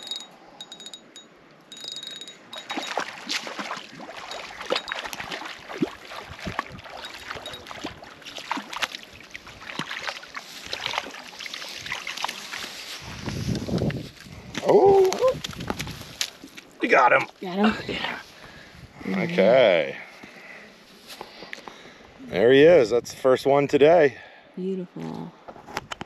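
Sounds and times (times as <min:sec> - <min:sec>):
fish splashing at the surface: 0:02.6 - 0:13.0.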